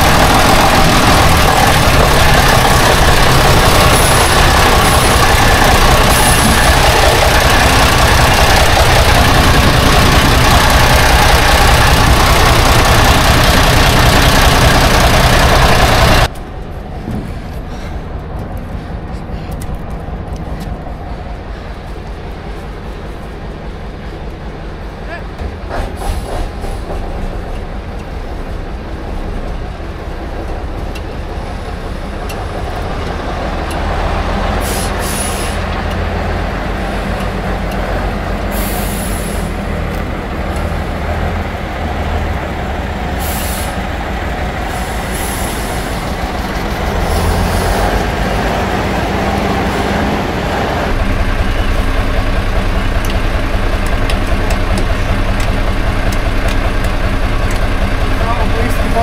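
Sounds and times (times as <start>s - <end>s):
diesel truck engine running: 0.0s - 59.0s
air brake hisses: 34.6s - 35.6s, 38.5s - 39.5s, 43.2s - 43.8s, 44.8s - 45.9s.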